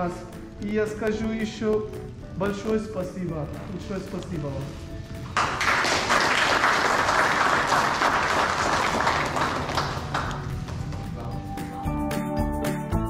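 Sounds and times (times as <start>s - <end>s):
people applauding: 5.3s - 11.0s.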